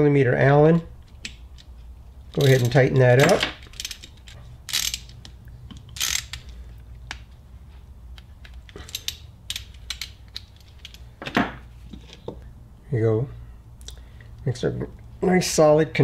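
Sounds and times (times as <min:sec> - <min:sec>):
hand ratchet clicking: 0:02.3 - 0:07.2, 0:08.1 - 0:11.0.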